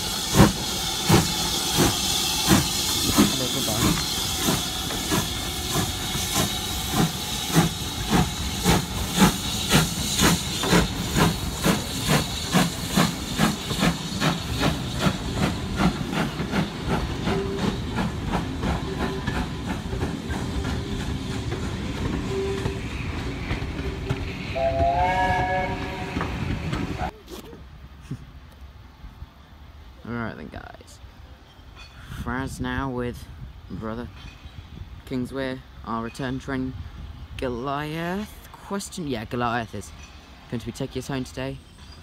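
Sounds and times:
steam hissing: 0.0 - 27.1
steam locomotive chuffing: 0.0 - 27.1
train whistle: 24.5 - 26.4.

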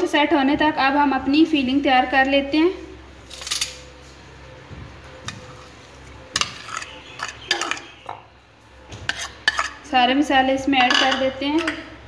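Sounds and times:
metal spoon scraping a bowl: 5.3 - 8.1, 9.0 - 10.0.

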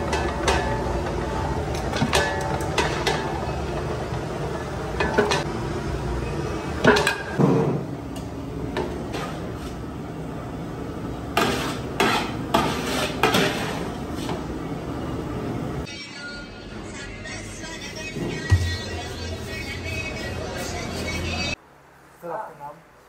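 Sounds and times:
metal dish scraping pot: 11.4 - 13.9.

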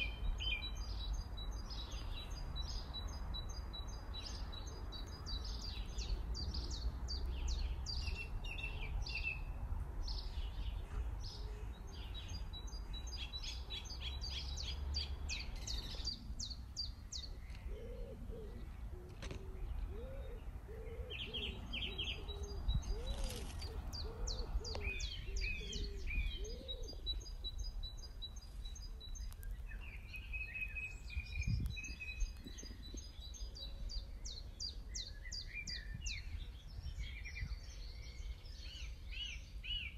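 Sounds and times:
small birds chirping and trilling: 0.0 - 39.9
lower bird call: 17.1 - 36.4.

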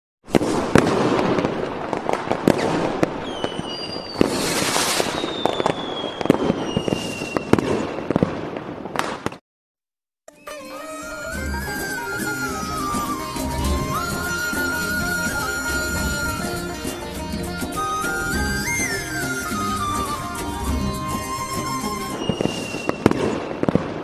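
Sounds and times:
fireworks crackling and banging: 0.2 - 9.4, 11.3 - 24.0
fireworks whistling down in pitch: 0.3 - 9.2, 10.4 - 24.0
music: 10.3 - 22.9.

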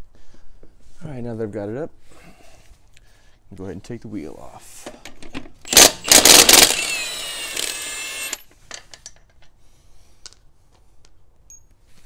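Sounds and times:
impact wrench hammering: 5.7 - 8.4
impact wrench whine: 5.7 - 8.5.

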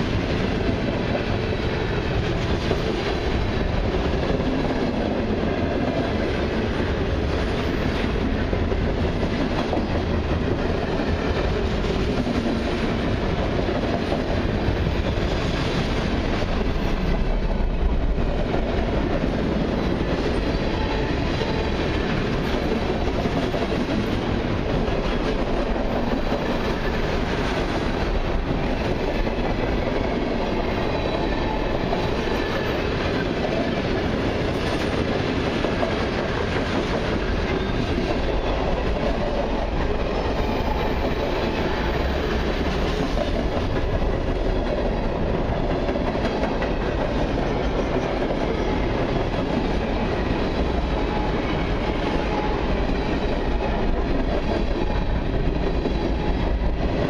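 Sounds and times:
freight train wheels rolling on rail: 0.0 - 57.0.

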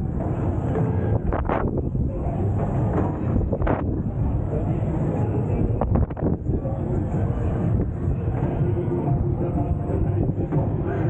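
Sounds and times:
air rushing over microphone: 0.0 - 8.6
steady low rumble: 0.0 - 11.0.

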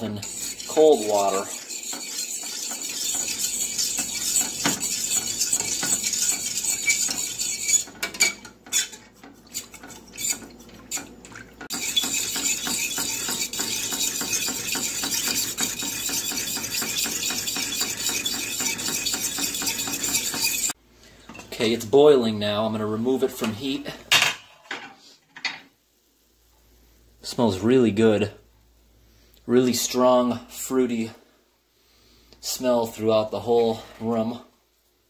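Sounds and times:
fork scraping and clinking in saucepan: 0.2 - 11.1, 11.7 - 20.8.

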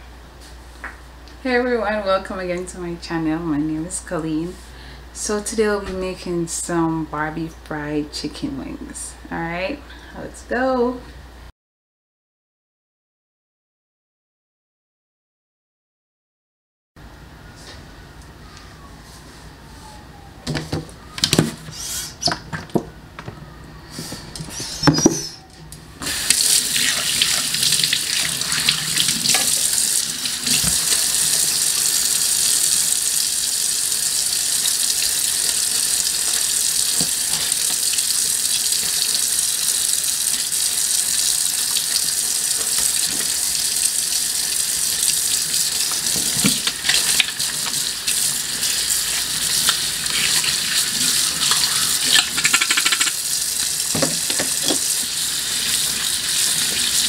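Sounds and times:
sink being scrubbed: 26.0 - 32.1, 45.4 - 57.0
tap water running into sink: 26.0 - 57.0.

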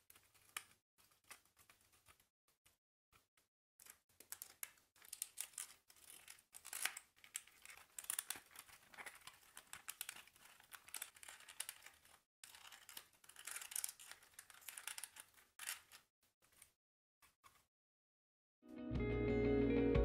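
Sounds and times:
card and paper crinkling: 0.0 - 2.3, 3.8 - 16.8.

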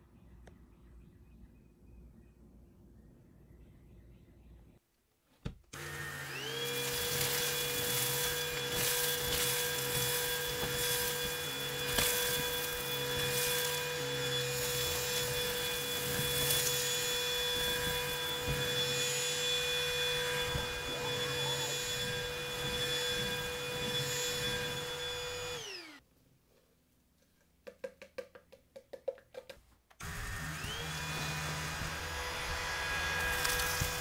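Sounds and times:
vacuum motor whine: 5.7 - 26.0, 30.0 - 34.0
grit crackling up nozzle: 6.6 - 18.8.

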